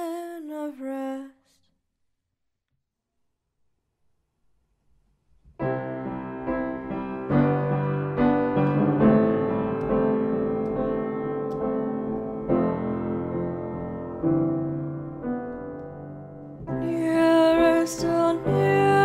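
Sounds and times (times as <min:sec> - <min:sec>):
slow piano chords: 0:05.6 - 0:19.0.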